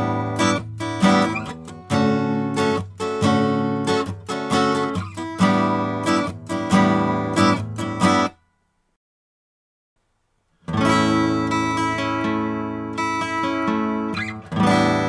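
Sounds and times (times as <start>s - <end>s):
guitar strumming chords: 0.0s - 8.4s, 10.6s - 15.0s.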